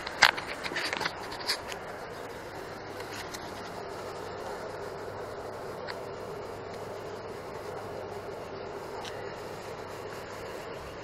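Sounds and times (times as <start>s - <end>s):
fingers scraping camera body: 0.0s - 1.8s, 2.9s - 3.8s
low background hiss: 0.0s - 11.0s.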